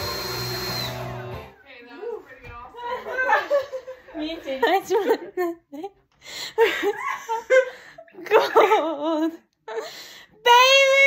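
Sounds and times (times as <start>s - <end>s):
girl laughing: 6.6s - 9.4s.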